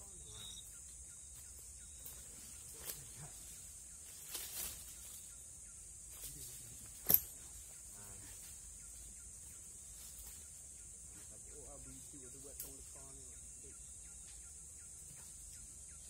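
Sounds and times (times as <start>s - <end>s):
insects droning: 0.0s - 16.0s
footfalls in dry leaves: 4.1s - 5.2s.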